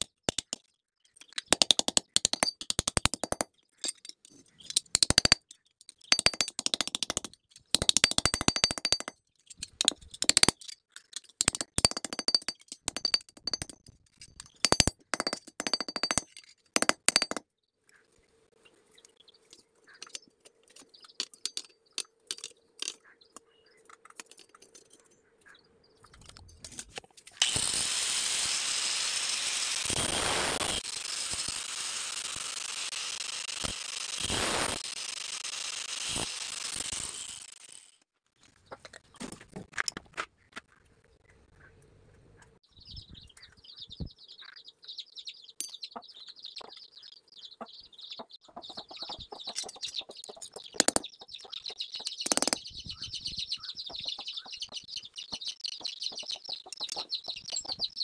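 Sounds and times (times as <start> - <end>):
angle grinder running: 27.4 - 37.8.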